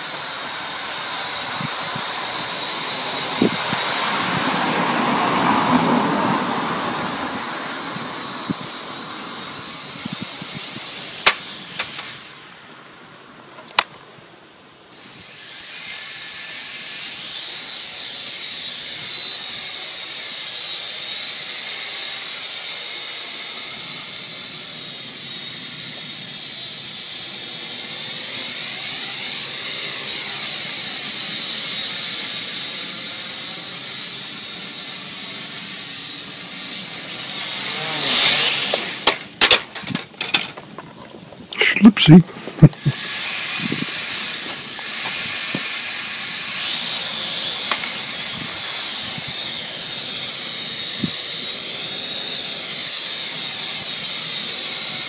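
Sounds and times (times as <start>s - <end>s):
quadcopter motors whining: 0.0s - 55.0s.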